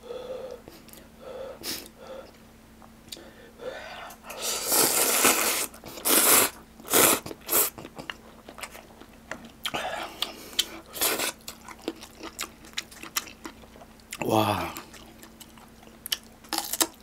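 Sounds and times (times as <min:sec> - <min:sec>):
person slurping noodles: 0:04.4 - 0:07.8
chewing with wet mouth clicks: 0:07.7 - 0:14.2, 0:14.8 - 0:17.0.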